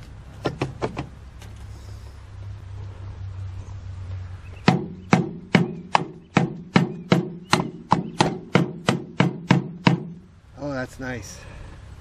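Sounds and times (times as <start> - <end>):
tool tamping soil knocks: 0.0 - 1.6, 4.6 - 10.2.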